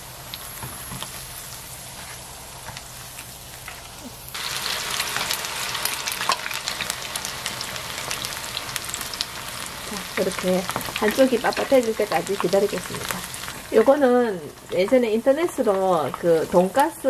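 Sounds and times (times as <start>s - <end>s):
food sizzling in hot oil: 0.0s - 17.0s.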